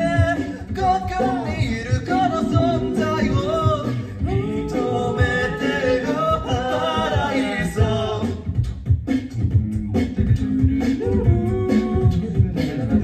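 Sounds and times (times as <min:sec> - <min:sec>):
group singing in harmony: 0:00.0 - 0:08.6
vocal percussion beat: 0:00.0 - 0:13.0.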